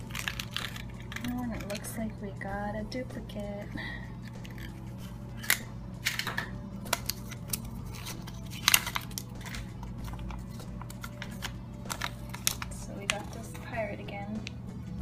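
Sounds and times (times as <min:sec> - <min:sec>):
paper crinkling: 0:00.0 - 0:01.9, 0:06.8 - 0:13.7
steady low hum: 0:00.0 - 0:15.0
plastic capsule clicks: 0:05.4 - 0:13.4.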